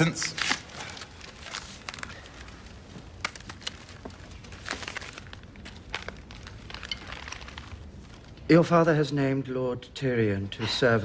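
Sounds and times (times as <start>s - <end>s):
clothing rustling: 0.3s - 8.5s.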